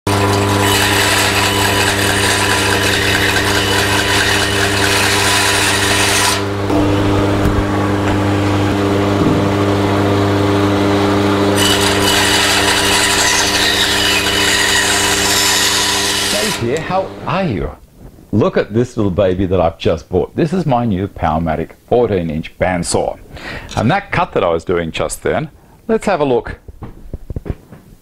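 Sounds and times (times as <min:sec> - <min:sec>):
saw blade cutting wood: 0:00.1 - 0:07.6, 0:11.4 - 0:17.3
bandsaw motor hum: 0:00.1 - 0:17.3.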